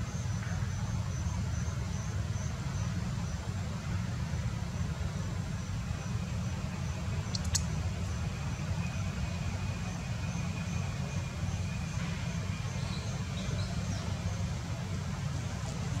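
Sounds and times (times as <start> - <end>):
insect chirping: 7.2 - 7.8.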